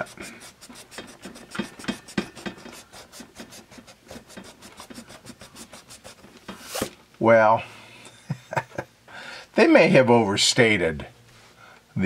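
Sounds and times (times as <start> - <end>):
eraser scrubbing on paper: 0.0 - 6.9.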